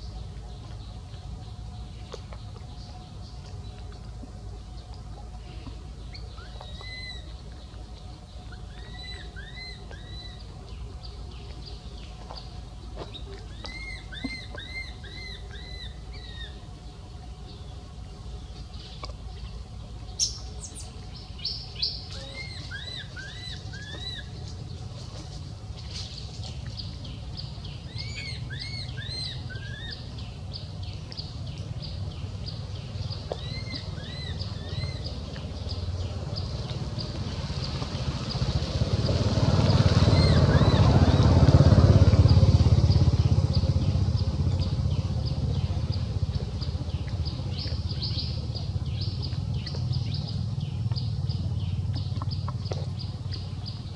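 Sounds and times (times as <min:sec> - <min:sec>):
high chirping calls: 0:20.2 - 0:24.3
vehicle engine passing: 0:31.5 - 0:53.9.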